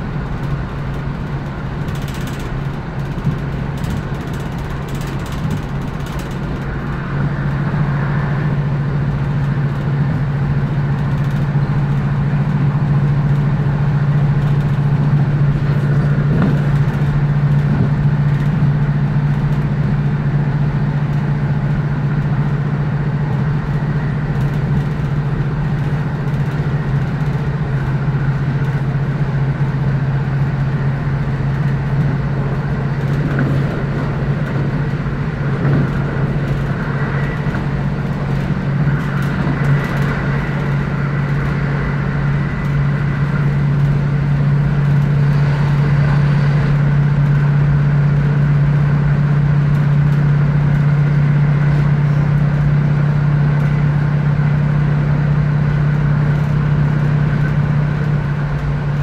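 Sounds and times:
diesel engine drone: 0.0s - 59.0s
wheel and rail rumble: 0.0s - 59.0s.

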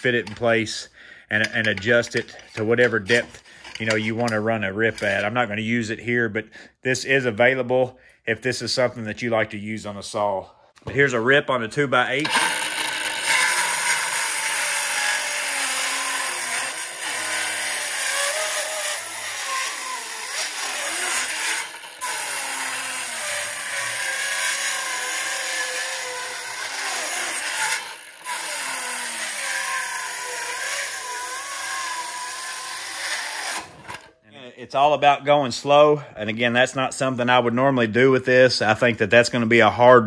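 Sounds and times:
circular saw cutting wood: 12.1s - 34.1s.

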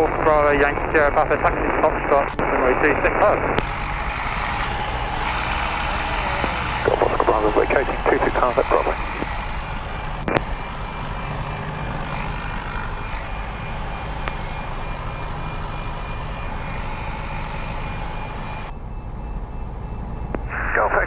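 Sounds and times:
light aircraft engine droning: 0.0s - 21.0s.

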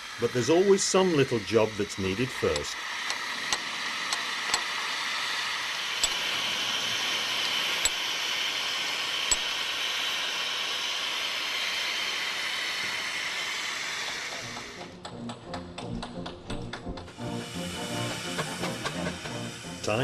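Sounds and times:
steam engine hissing: 0.0s - 20.0s.

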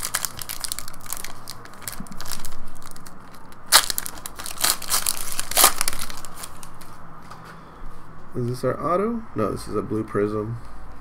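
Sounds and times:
foil wrapper crinkling and tearing: 0.0s - 6.9s.

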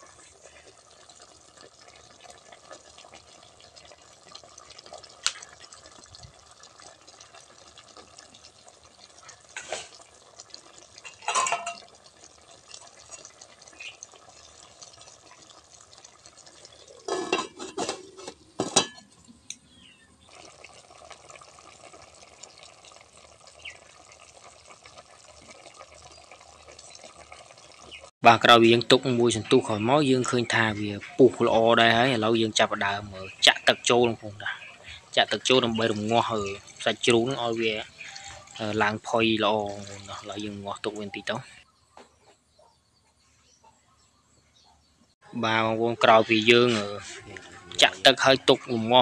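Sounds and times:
pot simmering hiss: 0.0s - 41.7s, 45.2s - 49.0s
metal pot and utensil clinking: 9.5s - 10.0s, 11.0s - 12.0s, 16.9s - 19.3s.

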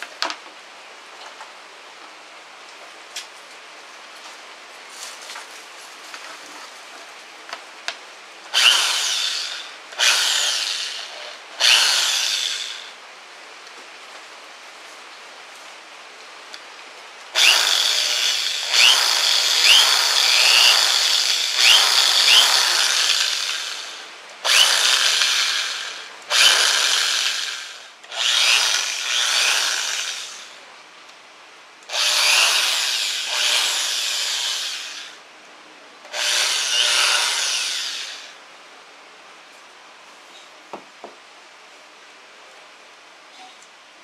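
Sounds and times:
electric drill running: 8.5s - 12.9s, 17.4s - 30.6s, 31.9s - 35.2s, 36.1s - 38.4s.

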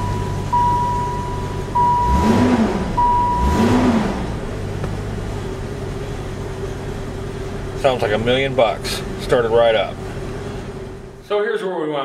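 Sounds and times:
dashboard chime tone: 0.0s - 3.8s
car engine revving and idling: 0.0s - 11.2s.

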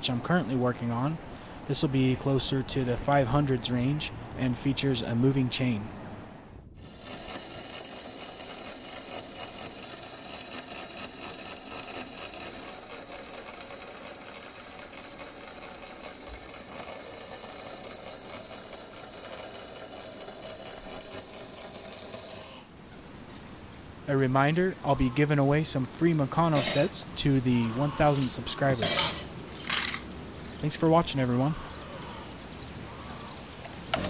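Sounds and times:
metal chain and gears: 6.8s - 22.6s, 28.7s - 30.0s
small electric motor running: 6.8s - 22.7s.

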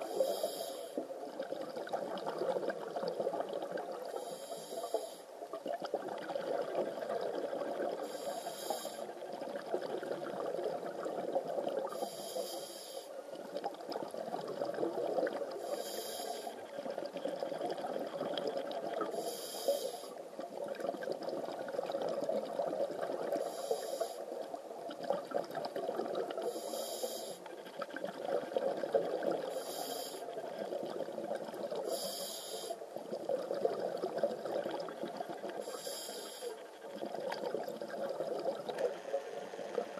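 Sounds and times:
diver breathing through regulator: 0.0s - 1.0s, 4.2s - 5.3s, 8.0s - 9.1s, 11.9s - 13.1s, 15.6s - 16.6s, 19.1s - 20.2s, 23.4s - 24.3s, 26.4s - 27.4s, 29.5s - 30.3s, 31.9s - 32.8s, 35.6s - 36.6s
underwater rumble: 32.9s - 39.9s.

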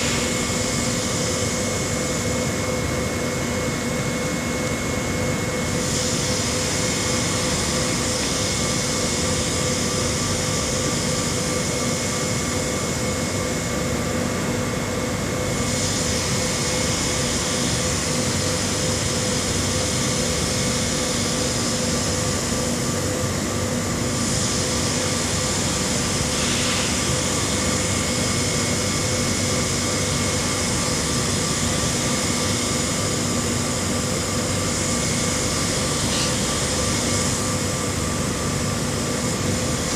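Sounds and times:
sewing machine humming and whining: 0.0s - 13.9s.

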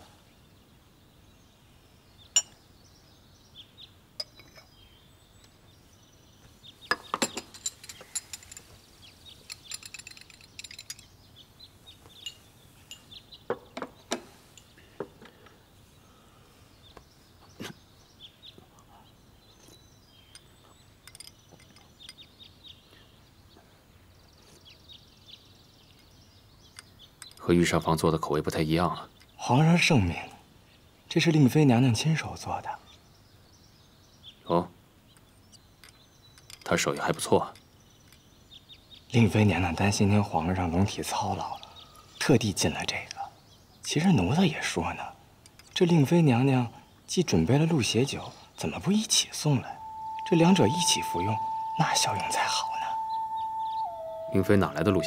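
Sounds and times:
porcelain cup and spoon clinking: 4.2s - 4.7s, 20.3s - 22.3s.

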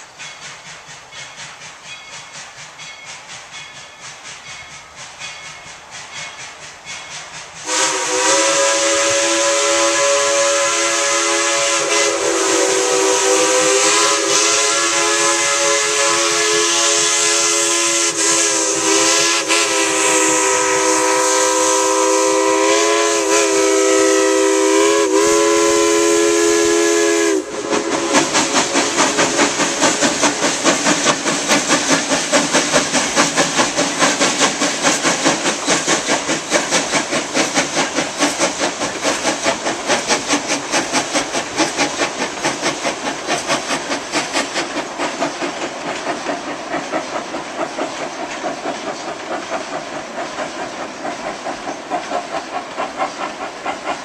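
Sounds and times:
hissing steam: 0.0s - 54.0s
locomotive chuffing: 0.0s - 54.0s
steam whistle: 5.4s - 29.7s.

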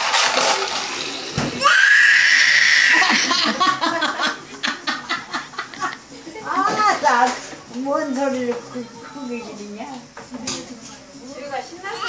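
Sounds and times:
baby squealing: 1.6s - 3.2s.

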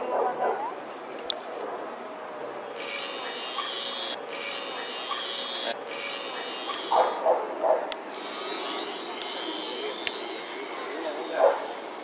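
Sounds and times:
toy propeller motor whirring: 2.8s - 7.2s, 8.1s - 12.0s.

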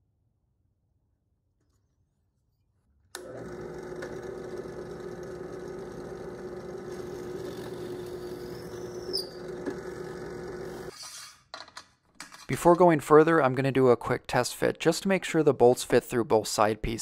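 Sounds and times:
drill press humming: 3.2s - 10.9s.

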